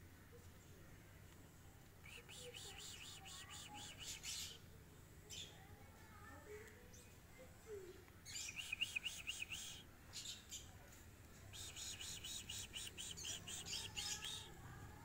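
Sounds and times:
bird chirping rapidly: 8.3 - 9.8, 11.6 - 14.5.

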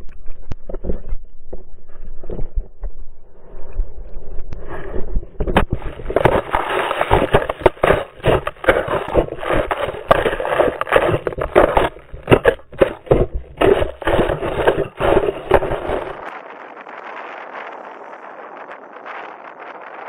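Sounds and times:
knocks thuds and scraping on camera: 5.0 - 16.3.

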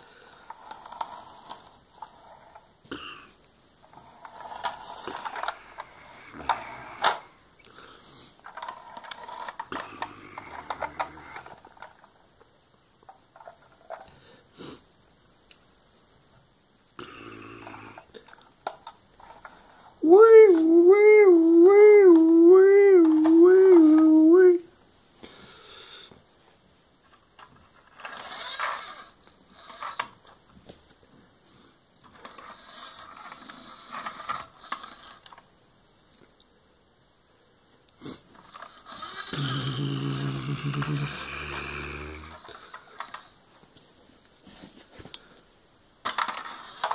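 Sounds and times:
plastic toy clicks and rattles: 3.9 - 7.3, 8.4 - 12.2, 27.1 - 30.4, 32.0 - 35.5, 42.2 - 43.4, 46.0 - 46.9.

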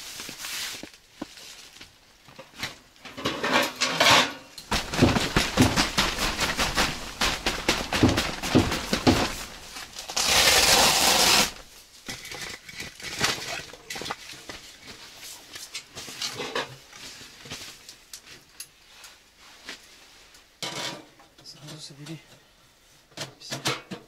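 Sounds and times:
tent fabric rustling: 0.0 - 2.0, 4.7 - 12.0.

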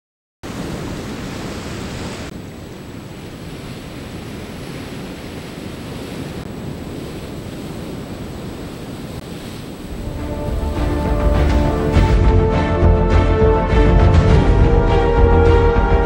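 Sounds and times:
surf washing over rocks: 0.4 - 12.2
wind buffeting microphone: 0.5 - 12.3.

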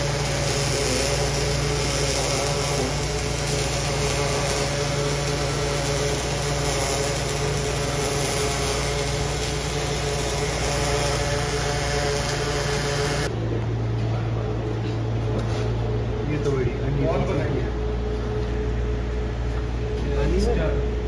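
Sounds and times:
welding arc hissing: 0.0 - 13.3
low machine hum: 0.0 - 21.0.

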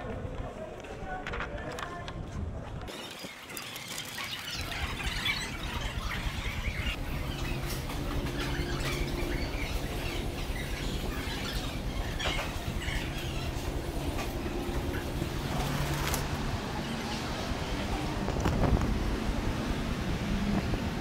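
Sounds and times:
outdoor background noise: 0.0 - 21.0
birds chirping and squawking: 2.9 - 17.3.

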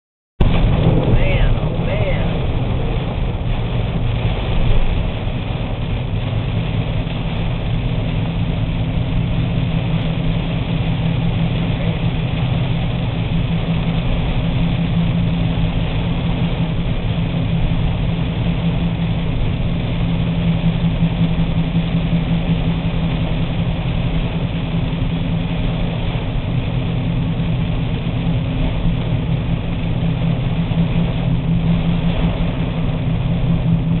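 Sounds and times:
car engine and road hum: 0.4 - 34.0
heavy rain on car roof: 0.4 - 34.0.

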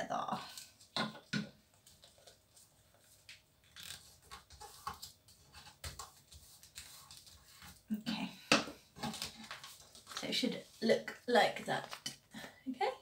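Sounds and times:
paper rustling: 1.8 - 7.9, 8.9 - 11.0.

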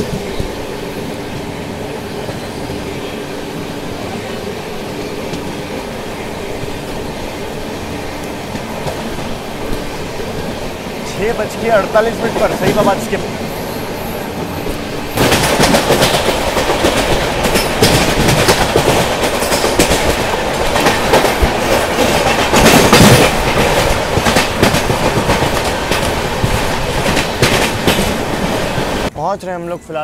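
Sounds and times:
passing electric train: 0.0 - 30.0
train wheels clacking over rail joints: 14.4 - 29.0.

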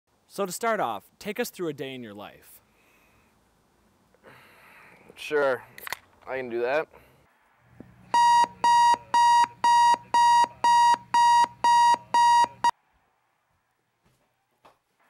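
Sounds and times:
alarm clock beeping: 8.1 - 12.7.

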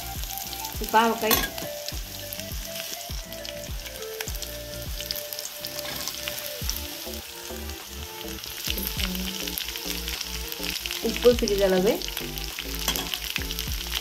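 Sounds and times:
background music: 0.0 - 14.0
hot oil sizzling and crackling: 0.0 - 14.0.

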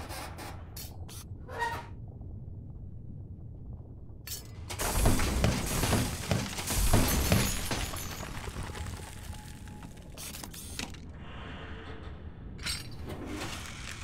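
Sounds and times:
mechanical clatter and rubble: 0.0 - 2.4, 3.3 - 14.0
rock and crystal shattering: 4.8 - 10.0.

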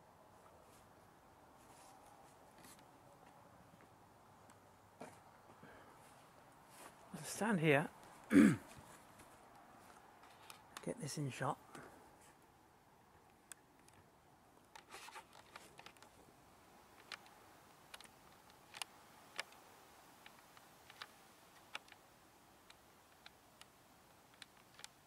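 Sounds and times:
faint steady hiss: 0.0 - 25.0
camera handling clicks and rustles: 10.2 - 10.8, 14.6 - 16.2, 17.0 - 19.6, 20.2 - 22.0, 22.6 - 25.0.

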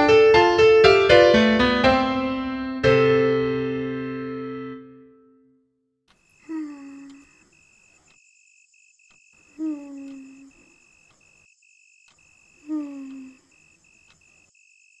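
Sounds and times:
crickets chirping: 6.1 - 15.0
cartoon snoring: 6.5 - 7.3, 9.6 - 10.6, 12.7 - 13.4.

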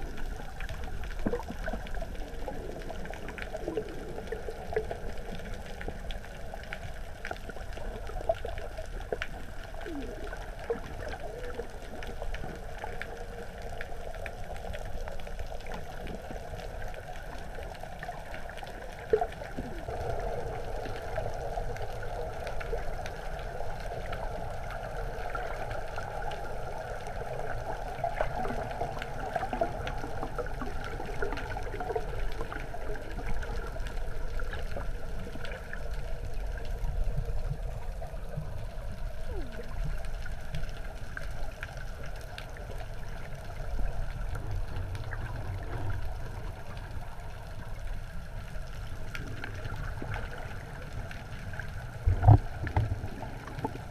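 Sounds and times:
faint clicks: 0.0 - 21.0
low underwater rumble: 0.0 - 53.9
underwater sloshing and bubbling: 0.0 - 53.9.

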